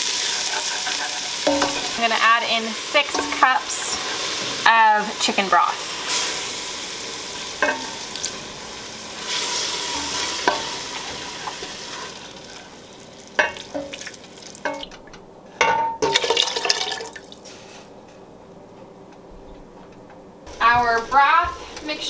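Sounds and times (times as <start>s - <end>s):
vegetables sizzling in butter: 0.0s - 14.7s.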